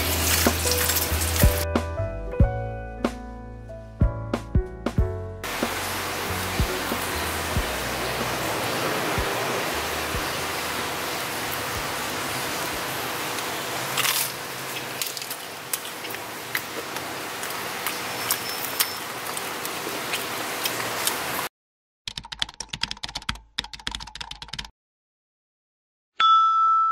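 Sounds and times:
crispy crust crackling: 0:00.0 - 0:01.6, 0:13.4 - 0:21.3.

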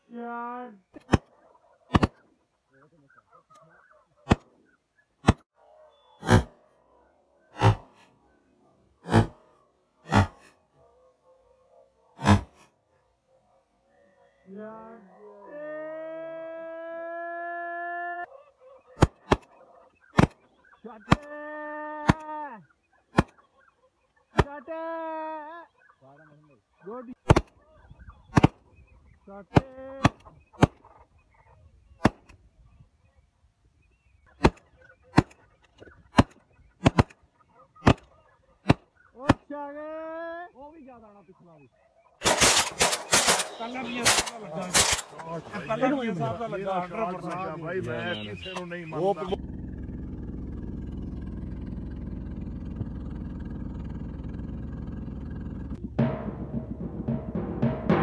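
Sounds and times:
shotgun shots: 0:01.9 - 0:02.2, 0:19.0 - 0:20.4, 0:27.2 - 0:27.6, 0:28.3 - 0:28.6, 0:36.1 - 0:37.2, 0:42.2 - 0:45.3.

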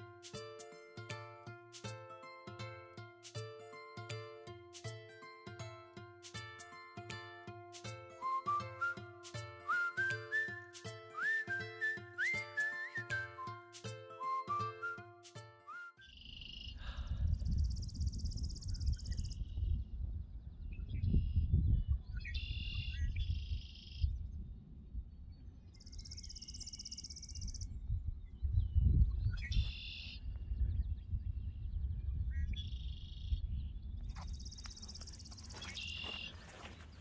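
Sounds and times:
songbirds singing buzzy trills: 0:17.5 - 0:24.5, 0:25.3 - 0:37.0.

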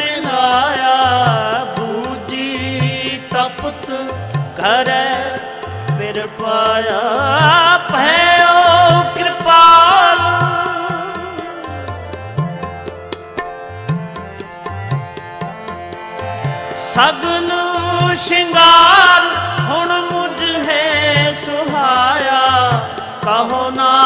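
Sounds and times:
person singing: 0:00.0 - 0:11.9, 0:16.8 - 0:24.0
harmonium: 0:00.0 - 0:24.0
tabla beat: 0:00.0 - 0:24.0.

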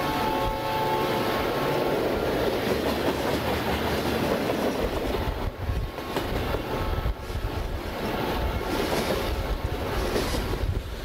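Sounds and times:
train wheels rolling on rails: 0:00.0 - 0:11.0.

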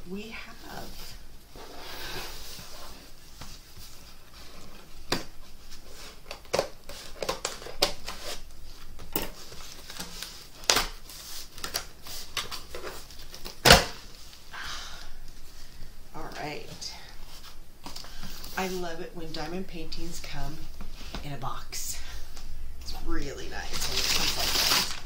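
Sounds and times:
cardboard rustling: 0:00.9 - 0:14.4, 0:23.6 - 0:25.0.

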